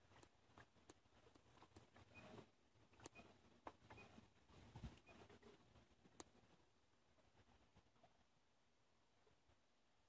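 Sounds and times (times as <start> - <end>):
faint clicks: 0.0 - 4.1, 4.8 - 6.4.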